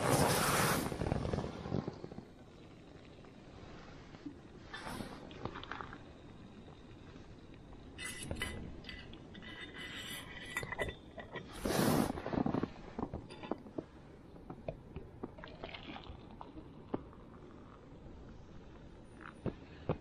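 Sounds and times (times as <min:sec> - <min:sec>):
metal pot clinking and scraping: 0:08.0 - 0:11.6.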